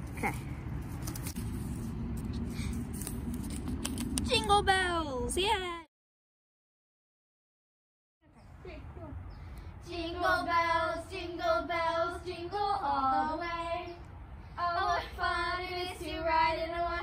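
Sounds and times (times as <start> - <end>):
girl singing unaccompanied: 9.8 - 14.0, 14.6 - 17.0.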